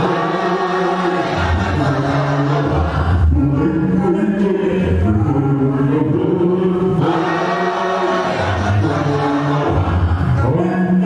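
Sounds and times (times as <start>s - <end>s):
group singing slow chant: 0.0s - 3.6s, 5.9s - 10.5s.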